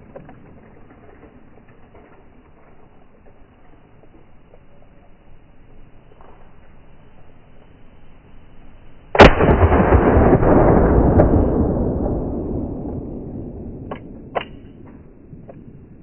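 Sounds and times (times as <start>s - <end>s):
low rumble: 0.0s - 16.0s
handgun shot: 13.0s - 15.7s.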